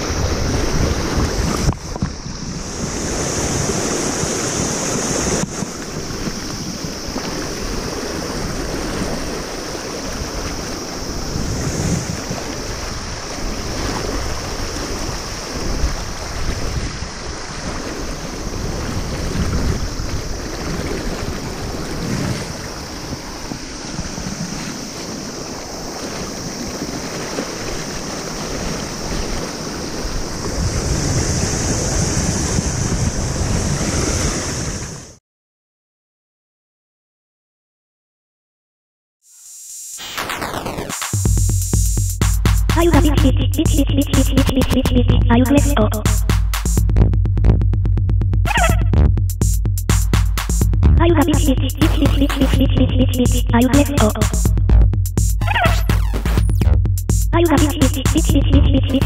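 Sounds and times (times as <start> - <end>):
wind on microphone: 0.0 - 35.2.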